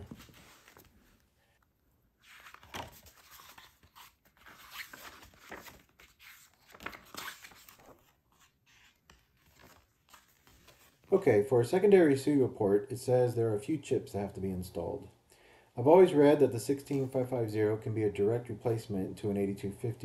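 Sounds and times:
paper pages turning: 0.0 - 1.3, 2.2 - 11.1.

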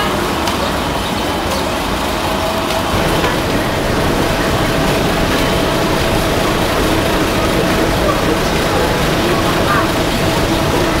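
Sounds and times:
street traffic rumble: 0.0 - 11.0
faint steady hum: 2.9 - 11.0.

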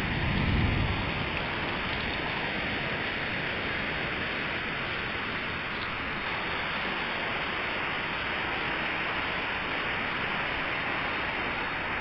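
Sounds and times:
heavy rain splashing into puddles: 0.0 - 12.0.

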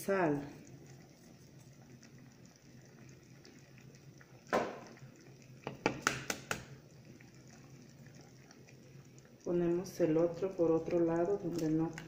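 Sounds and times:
sauce bubbling: 0.0 - 12.0
egg cracking: 0.6 - 9.4.

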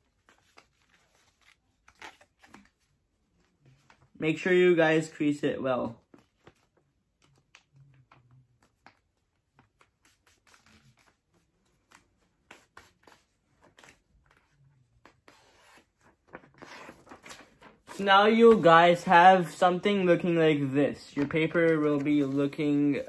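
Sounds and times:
paper crinkling: 6.0 - 19.7, 21.0 - 23.0.

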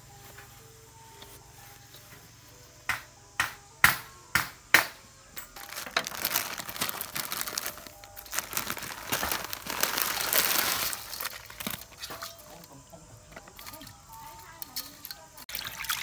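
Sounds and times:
plastic bag crinkling: 5.6 - 12.7.

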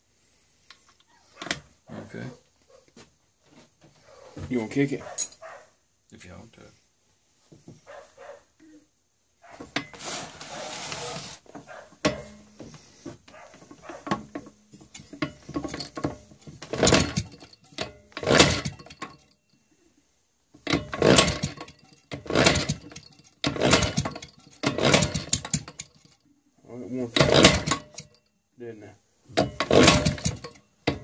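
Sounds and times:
engine turning over: 16.7 - 17.5, 18.2 - 19.0, 20.7 - 26.1, 27.2 - 28.0, 29.5 - 30.6.

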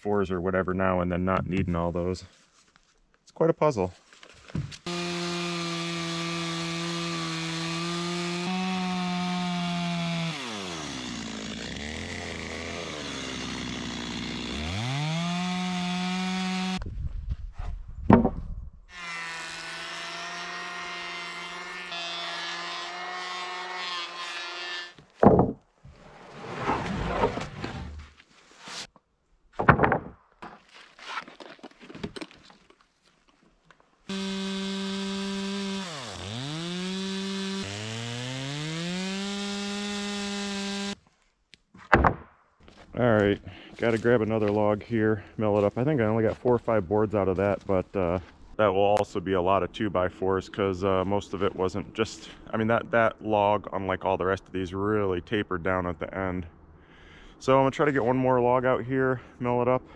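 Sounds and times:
chainsaw ripping wood: 4.7 - 16.8, 34.1 - 41.0
power planer shaving wood: 4.8 - 16.8, 18.9 - 25.0, 34.1 - 41.0.

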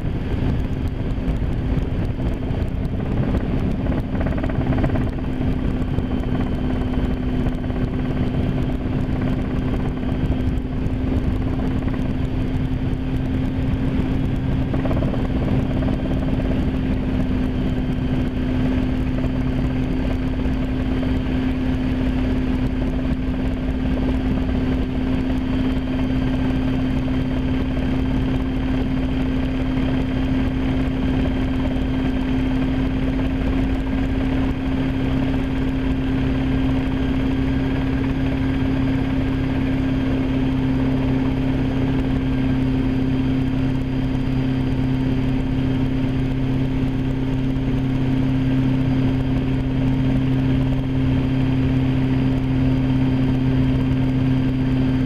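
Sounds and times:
helicopter engine and rotors droning: 0.0 - 55.0.

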